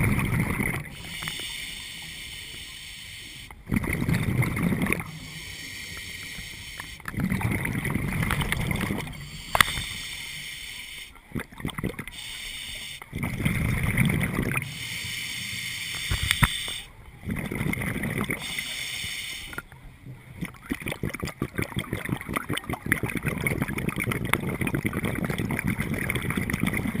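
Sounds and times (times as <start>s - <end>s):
bubbling exhale: 0.0s - 19.7s
crackling clicks: 0.4s - 10.5s, 14.0s - 18.8s
diver breathing through regulator: 0.8s - 11.2s, 12.1s - 16.9s, 18.3s - 19.6s.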